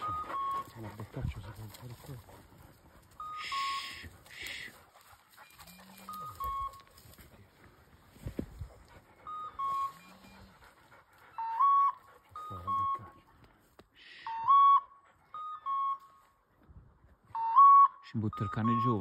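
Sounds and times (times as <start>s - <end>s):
two-note electronic beeps: 3.1s - 4.1s, 5.6s - 6.9s, 9.2s - 10.5s, 11.4s - 13.2s, 14.3s - 16.3s, 17.4s - 19.0s.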